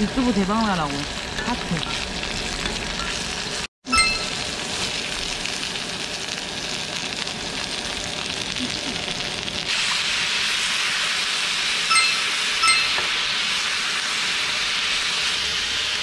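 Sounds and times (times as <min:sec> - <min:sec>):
meat sizzling on griddle pan: 0:00.0 - 0:16.0.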